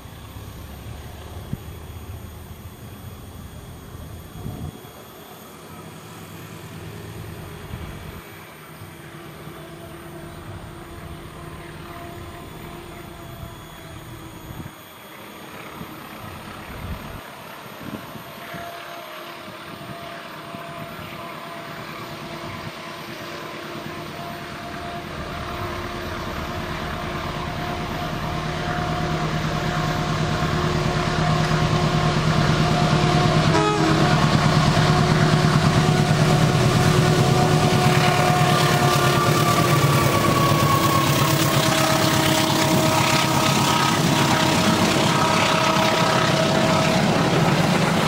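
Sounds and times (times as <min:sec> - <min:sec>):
locomotive passing at speed: 0:24.6 - 0:48.0.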